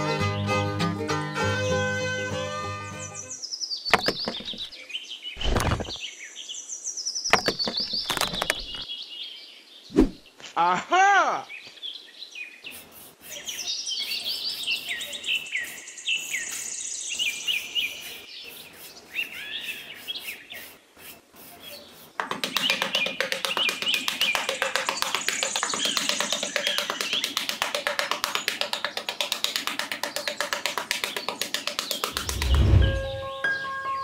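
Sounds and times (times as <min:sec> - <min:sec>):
birds chirping: 0:02.8 - 0:10.5, 0:11.4 - 0:33.4
scattered clicks: 0:07.3 - 0:08.8
music with fast tapping beat: 0:22.2 - 0:32.4.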